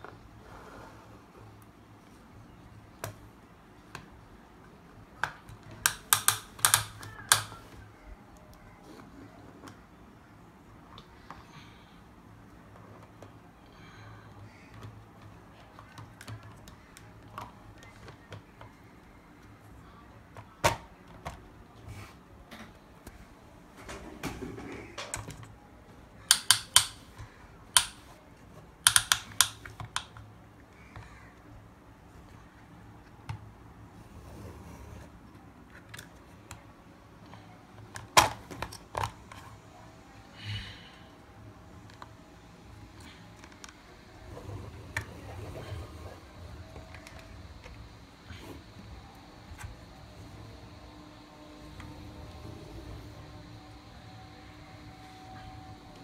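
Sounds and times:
low steady hum: 0.0 - 56.0
plastic toys clicking and knocking: 5.2 - 7.7, 26.3 - 28.2, 28.8 - 31.1.

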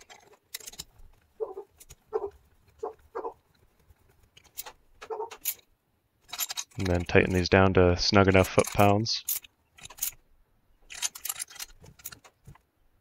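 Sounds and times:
metal clicks of screws and driver: 0.0 - 2.0, 4.2 - 5.7, 6.3 - 7.4, 8.3 - 10.2, 10.8 - 12.6.

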